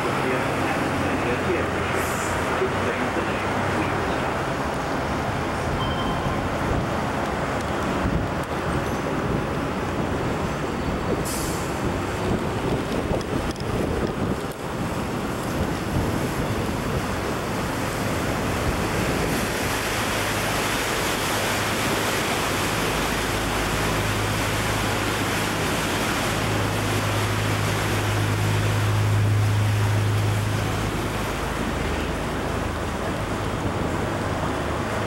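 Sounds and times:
low engine hum: 0.0s - 35.0s
water rushing: 0.0s - 35.0s
wind on microphone: 4.7s - 23.3s.

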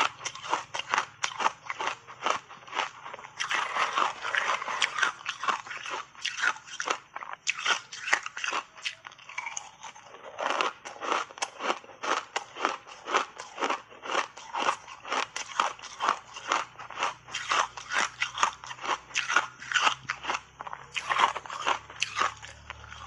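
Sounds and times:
crunching and chewing ice: 0.0s - 23.0s.

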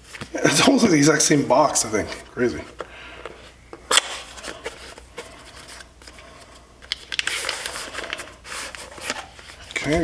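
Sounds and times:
plastic wrapping rustling: 3.4s - 10.0s.

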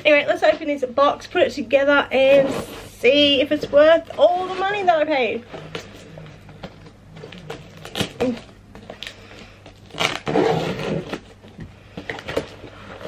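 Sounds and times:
cardboard scraping rustle: 2.1s - 13.0s
tool piercing and slitting tape: 9.8s - 11.3s.

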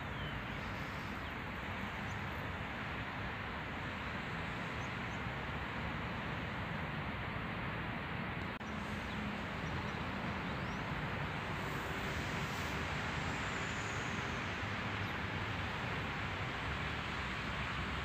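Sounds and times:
outdoor rushing hiss: 8.6s - 18.0s.

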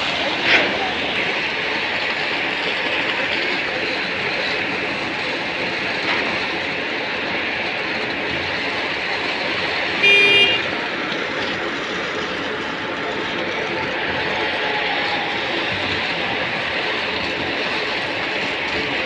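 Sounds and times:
concrete pump machinery noise: 0.0s - 19.0s
short horn toot: 10.0s - 10.6s.

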